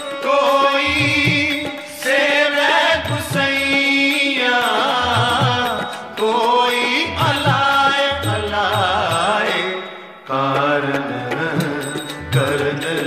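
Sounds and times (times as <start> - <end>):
person singing devotional song: 0.0 - 13.0
hand drum beats: 5.0 - 9.4.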